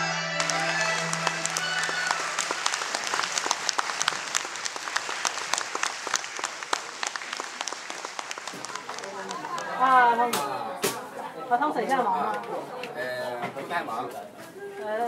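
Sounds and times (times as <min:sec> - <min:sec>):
audience applauding: 0:00.4 - 0:10.3.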